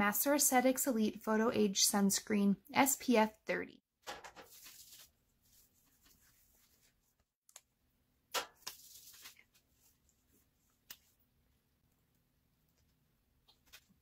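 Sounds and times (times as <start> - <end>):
hands rustling products: 4.4 - 7.3, 8.5 - 11.2.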